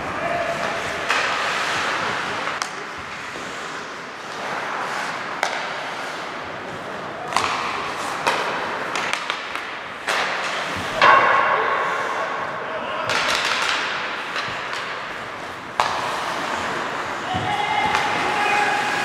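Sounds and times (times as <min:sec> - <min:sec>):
clacks of sticks and puck: 0:00.0 - 0:12.2, 0:13.0 - 0:19.0
skates scraping ice: 0:00.0 - 0:12.4, 0:13.1 - 0:19.0.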